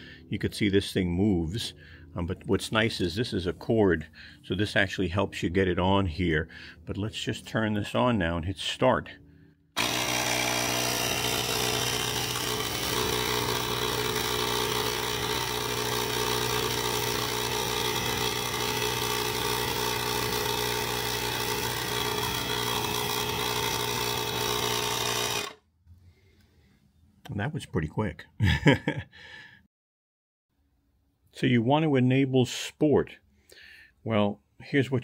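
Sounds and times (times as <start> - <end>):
tyre inflator compressor running: 9.8 - 25.6.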